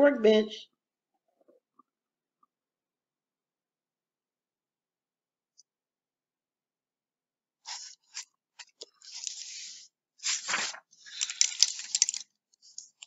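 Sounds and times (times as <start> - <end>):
paper pages rustling: 7.7 - 13.0.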